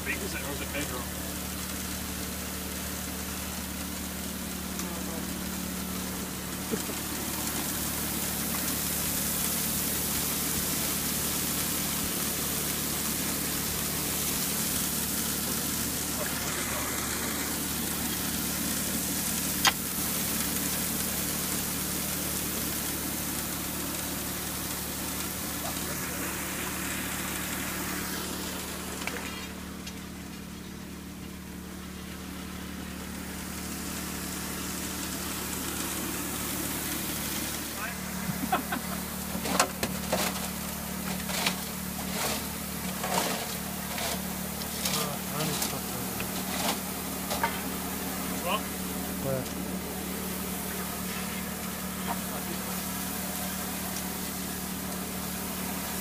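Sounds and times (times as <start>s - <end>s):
rushing water: 0.0s - 56.0s
water pump engine running: 0.0s - 56.0s
stones knocking in metal hopper: 39.4s - 47.6s.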